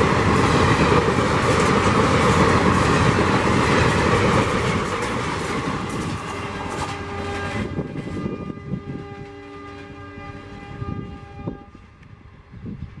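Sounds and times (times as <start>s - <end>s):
train wheels rumbling and clattering: 0.0s - 9.9s
high-pitched tone from train: 0.0s - 13.0s.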